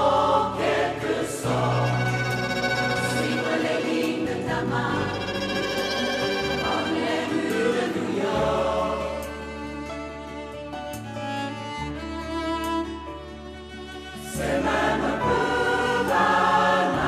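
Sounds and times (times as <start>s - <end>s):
choir singing with instruments: 0.0s - 10.4s, 14.1s - 17.0s.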